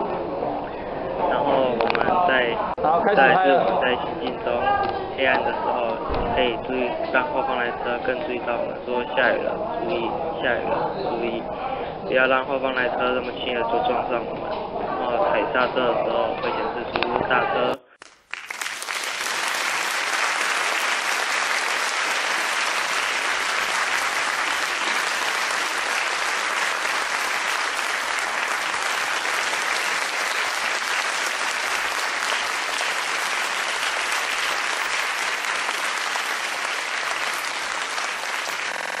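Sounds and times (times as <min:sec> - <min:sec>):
applause: 0:17.9 - 0:39.0.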